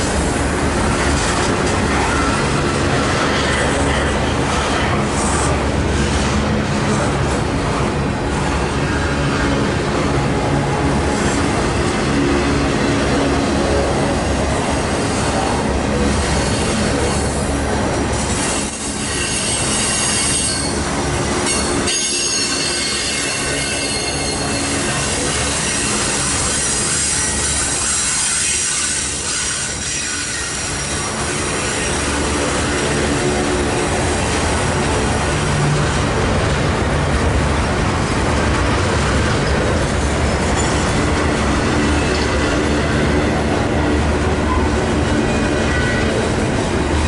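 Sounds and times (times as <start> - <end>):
train wheels rumbling on rails: 0.0 - 47.0
high wheel flange squeal: 18.4 - 20.8, 21.4 - 33.5.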